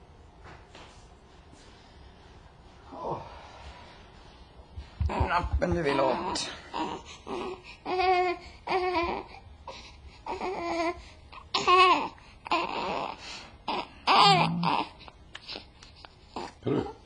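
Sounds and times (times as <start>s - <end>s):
baby crying: 5.1s - 9.4s, 10.2s - 15.6s.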